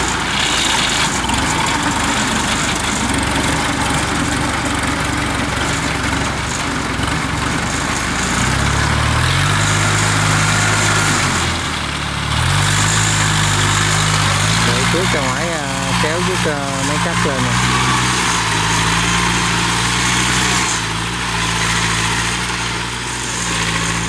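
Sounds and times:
diesel engines running: 0.0s - 24.0s
deep engine hum: 12.1s - 18.9s.

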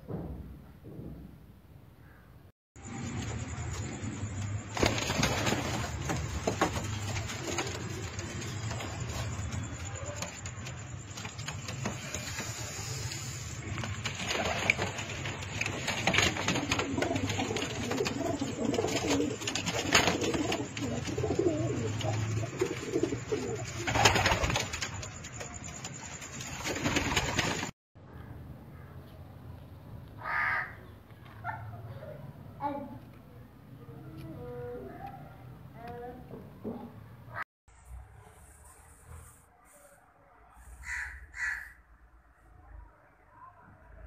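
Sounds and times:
pigeons cooing: 11.8s - 24.6s.

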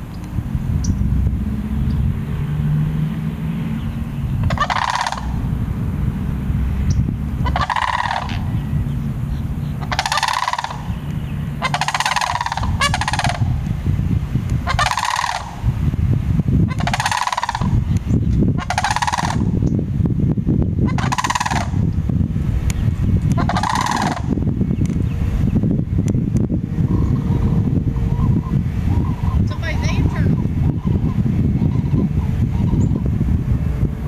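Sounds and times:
steady low rumble: 0.0s - 34.0s
cranes calling: 3.6s - 5.5s, 6.9s - 13.8s, 14.6s - 15.8s, 16.6s - 19.5s, 20.8s - 21.8s, 23.3s - 24.4s.

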